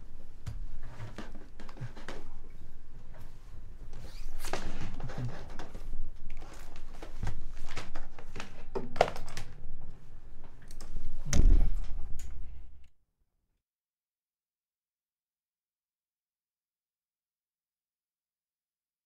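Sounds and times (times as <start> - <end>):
loud thump: 11.3 - 11.8.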